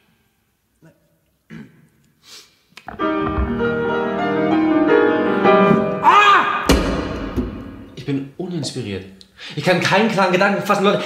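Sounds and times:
sudden crash: 2.9 - 4.6, 6.7 - 8.0
grand piano chords: 2.9 - 8.1.

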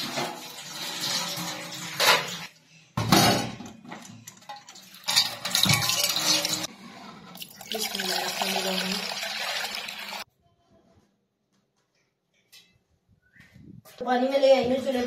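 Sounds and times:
water splashing into metal pot: 4.4 - 6.7, 7.4 - 10.2.

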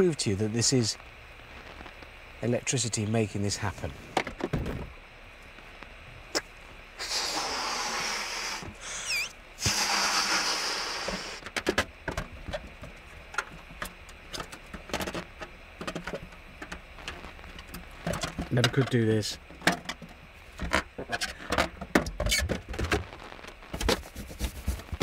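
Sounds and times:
radio static hiss: 0.0 - 25.0
balloon being blown up: 7.0 - 11.4
stretching rubber squeak: 8.5 - 11.4, 22.1 - 23.1
balloon crackling pops: 22.2 - 25.0.

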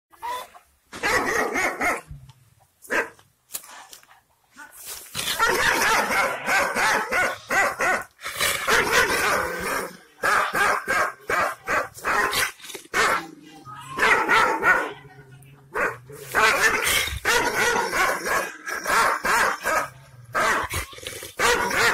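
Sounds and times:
dog barking angrily: 1.0 - 2.1, 5.3 - 13.3, 14.0 - 15.1, 15.7 - 21.9.

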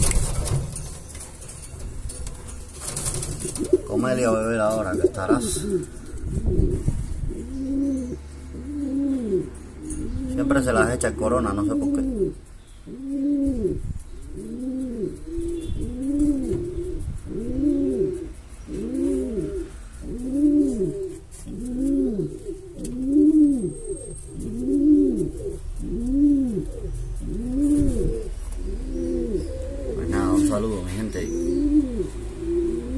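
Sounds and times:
pigeon cooing: 2.5 - 32.9.

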